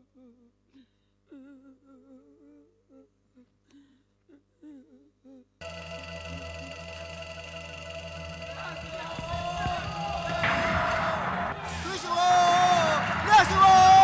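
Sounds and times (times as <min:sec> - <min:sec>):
person humming: 0:00.0 - 0:06.7
loud instrumental music: 0:05.6 - 0:14.0.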